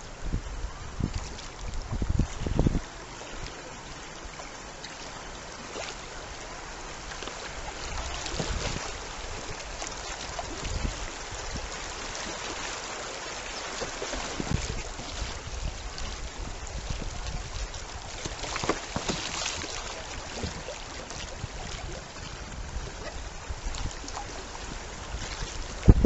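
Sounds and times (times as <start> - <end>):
river current rushing and splashing: 0.0 - 26.0.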